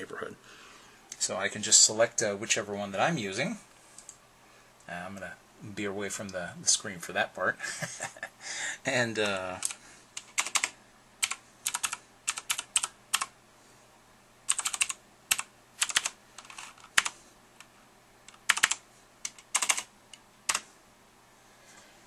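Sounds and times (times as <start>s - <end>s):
computer keyboard typing: 9.3s - 13.3s, 14.5s - 17.2s, 18.3s - 19.9s, 20.5s - 20.7s.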